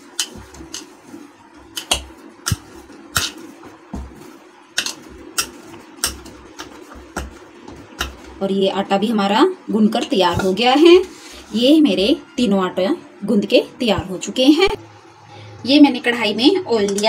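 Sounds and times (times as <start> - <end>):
steady low hum: 0.0 - 17.0
dull thuds of dough: 1.9 - 4.3
dough knocking against bowl: 4.8 - 8.4.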